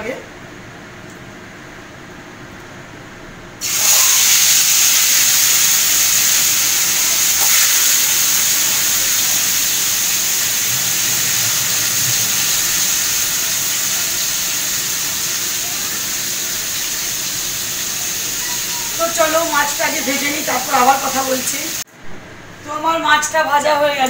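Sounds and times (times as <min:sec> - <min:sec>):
fish sizzling in hot oil: 0:03.6 - 0:21.8.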